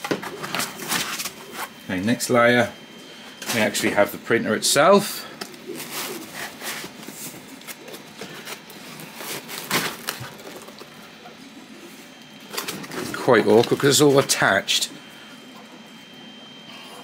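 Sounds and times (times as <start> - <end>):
packing foam and cardboard rubbing: 5.7 - 11.0.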